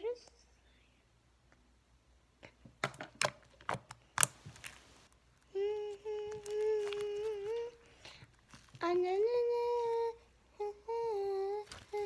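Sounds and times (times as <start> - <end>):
girl humming one note: 5.5 - 7.8.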